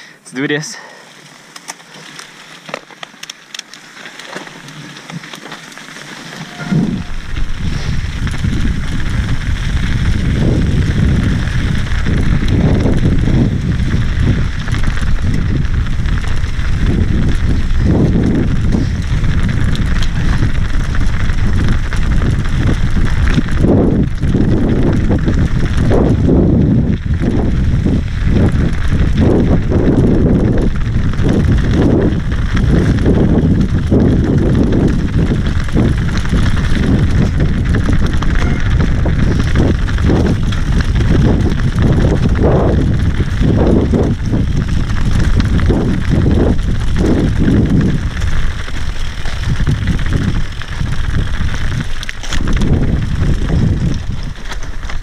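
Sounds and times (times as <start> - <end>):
bike rattling over rough trail: 0.5 - 55.0
scattered clicks: 1.5 - 7.1
wind on microphone: 6.3 - 55.0.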